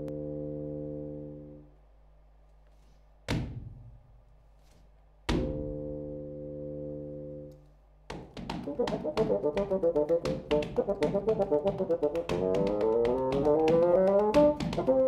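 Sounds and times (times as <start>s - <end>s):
foot stomps on wooden board: 8.1s - 15.0s.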